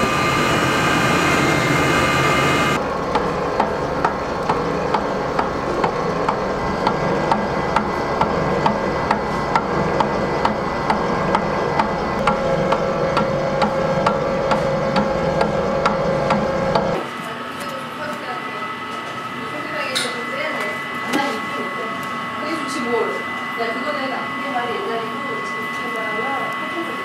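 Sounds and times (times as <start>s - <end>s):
regular mixer tick: 0.0s - 17.0s
stand mixer beating batter: 0.0s - 27.0s.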